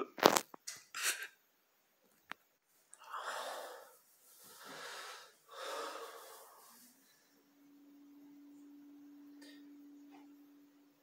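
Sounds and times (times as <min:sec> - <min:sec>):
man breathing heavily: 0:03.0 - 0:06.8.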